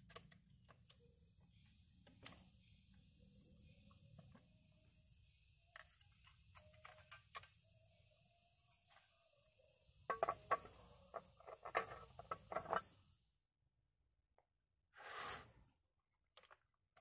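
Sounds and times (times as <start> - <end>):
high insect hum: 1.2 - 13.1.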